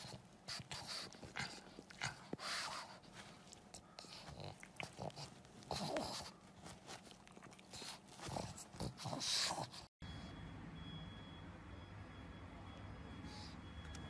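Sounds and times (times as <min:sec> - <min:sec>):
dog chewing a plush toy: 0:00.0 - 0:09.8
dog breathing: 0:00.0 - 0:10.0.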